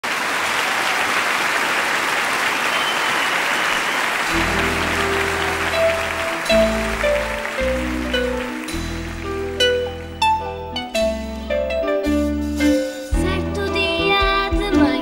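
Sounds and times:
audience applauding: 0:00.0 - 0:10.2
backing music with held low notes: 0:04.3 - 0:15.0.

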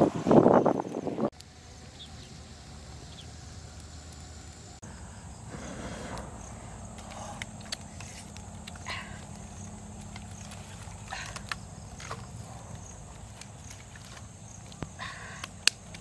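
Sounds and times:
faint steady background noise: 0:00.0 - 0:16.0
rustling: 0:05.5 - 0:16.0.

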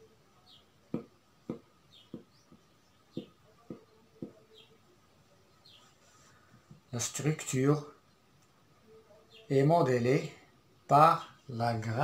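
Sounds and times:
marker tip tapping whiteboard: 0:00.9 - 0:02.6, 0:03.2 - 0:04.4.

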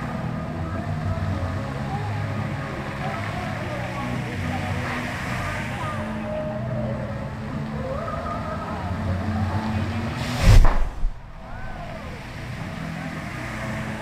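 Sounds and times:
steady low hum: 0:09.9 - 0:12.7
flame burst whoosh: 0:10.2 - 0:12.0.

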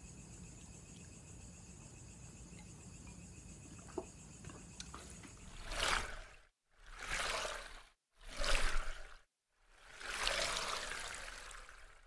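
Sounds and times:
night insects trilling: 0:00.0 - 0:06.4.

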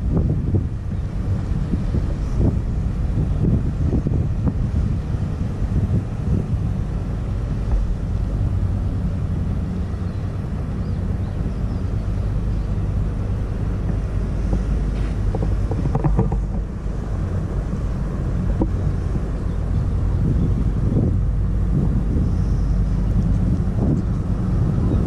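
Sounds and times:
ship engine drone: 0:00.0 - 0:25.0
wind buffeting microphone: 0:00.0 - 0:25.0
short knocks: 0:14.5 - 0:16.7.

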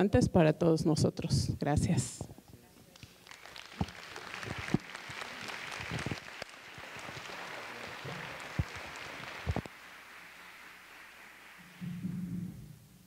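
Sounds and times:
audience clapping: 0:02.9 - 0:12.3.

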